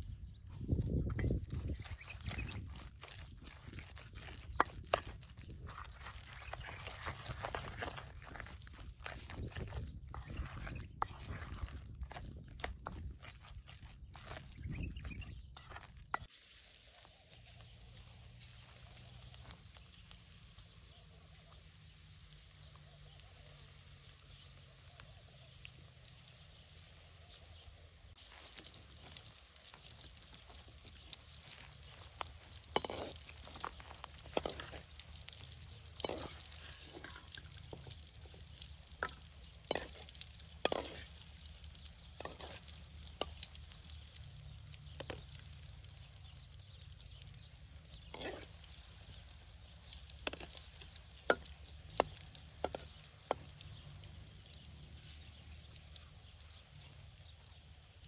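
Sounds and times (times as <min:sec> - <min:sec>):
batter sizzling in hot oil: 0:00.0 - 0:58.0
oil popping and ladle clicks: 0:25.4 - 0:57.8.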